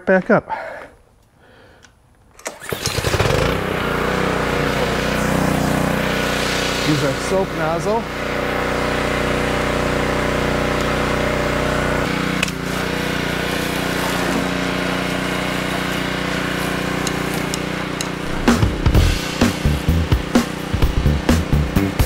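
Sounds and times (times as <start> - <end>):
pressure washer engine running: 2.6 - 22.0
water spraying hiss: 3.6 - 8.0, 12.5 - 21.2.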